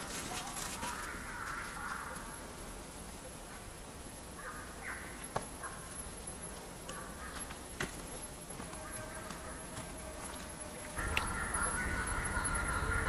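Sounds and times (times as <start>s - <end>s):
low outdoor background: 0.0s - 13.0s
harsh animal calls: 11.0s - 13.0s.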